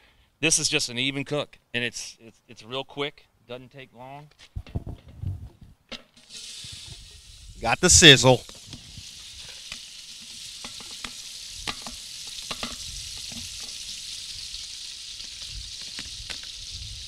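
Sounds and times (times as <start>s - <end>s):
pork fat sizzling in oil: 6.1s - 17.0s.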